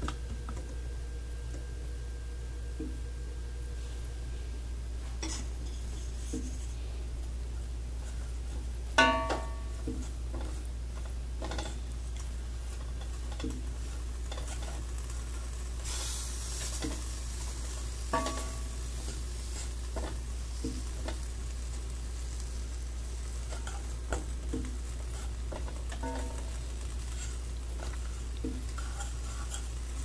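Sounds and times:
steady low hum: 0.0s - 30.0s
spoon knocking against pot: 9.0s - 10.0s, 18.2s - 18.7s
spoon stirring thick mix: 9.6s - 21.8s, 22.6s - 30.0s.

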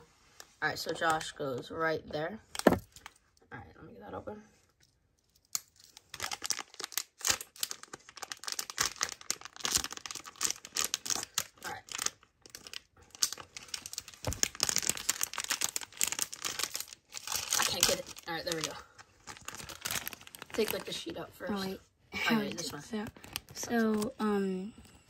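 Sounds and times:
wrapper crinkling and tearing: 5.2s - 21.2s, 22.6s - 24.2s.

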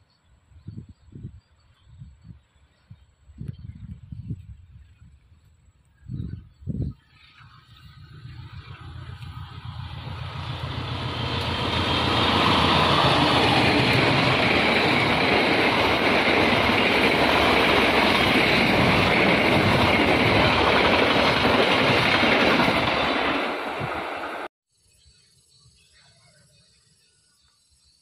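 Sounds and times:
train passing at speed: 6.8s - 24.5s.

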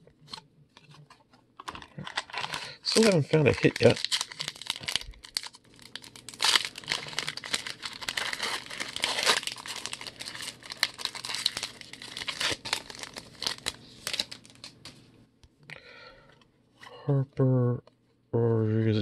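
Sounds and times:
foil wrapper crinkling: 0.3s - 15.0s.

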